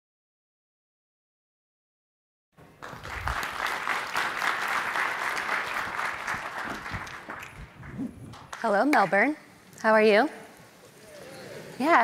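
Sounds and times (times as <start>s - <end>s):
audience applauding: 2.6s - 8.7s.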